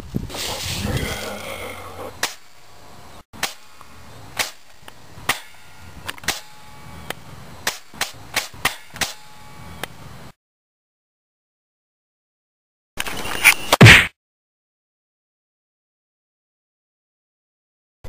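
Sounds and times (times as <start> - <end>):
airsoft rifle shots cracking: 4.4 - 4.7.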